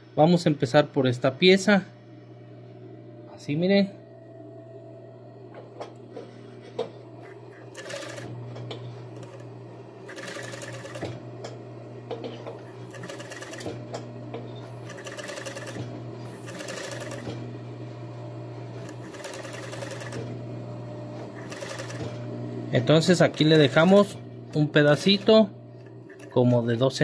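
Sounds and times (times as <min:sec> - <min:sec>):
steady low hum: 0:00.0 - 0:27.0
sewing machine stitching: 0:07.2 - 0:11.2, 0:12.3 - 0:14.0, 0:14.6 - 0:17.4, 0:18.8 - 0:20.4, 0:21.2 - 0:22.3, 0:22.9 - 0:26.6.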